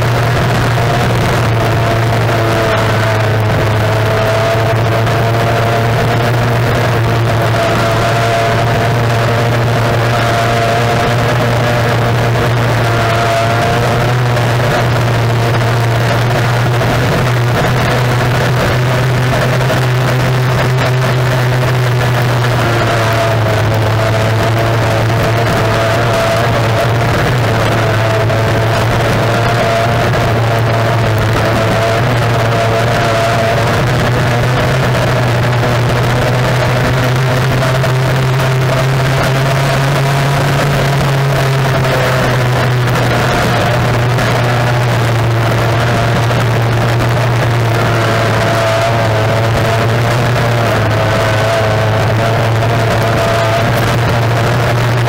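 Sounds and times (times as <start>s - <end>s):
outboard motor running flat out: 0.0s - 55.0s
water noise: 0.0s - 55.0s
wind noise: 0.0s - 55.0s.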